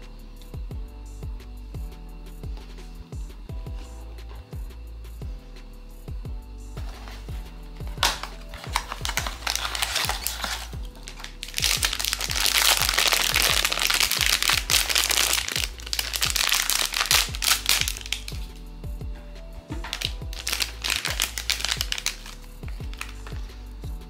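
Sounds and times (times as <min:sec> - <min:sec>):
music with low beat: 0:00.0 - 0:24.0
foil bag crinkling: 0:07.9 - 0:18.5, 0:19.8 - 0:23.5.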